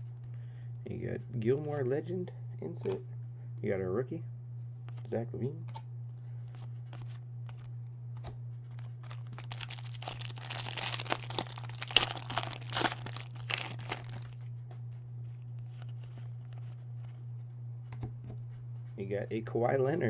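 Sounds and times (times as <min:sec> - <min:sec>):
steady low hum: 0:00.0 - 0:20.0
foil pack tearing and crinkling: 0:08.8 - 0:14.4.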